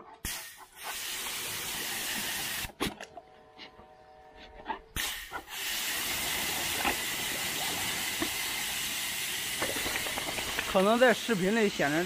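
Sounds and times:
high-pressure water jet hissing: 0.2s - 2.8s, 5.0s - 12.0s.

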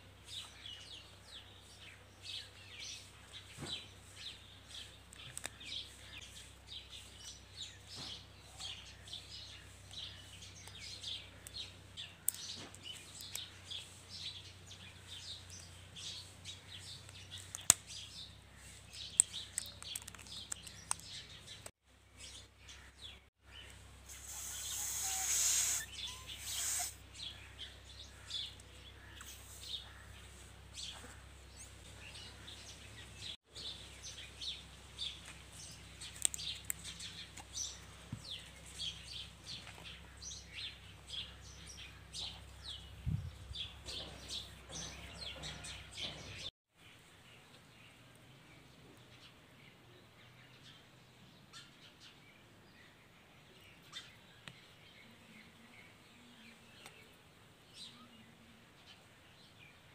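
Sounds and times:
birds chirping: 0.1s - 46.5s
loud rushing hiss: 24.1s - 27.0s.

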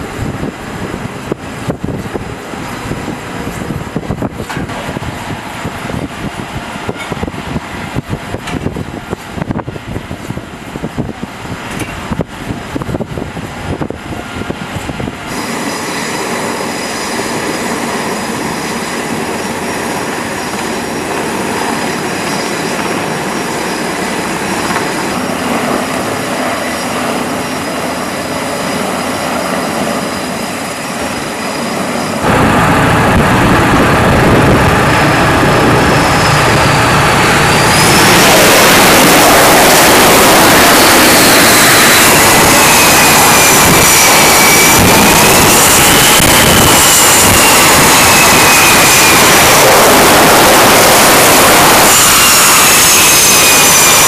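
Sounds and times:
wind buffeting microphone: 0.0s - 15.6s, 32.2s - 54.0s
jet engine noise: 0.0s - 54.0s
helicopter flying past: 15.3s - 44.2s.

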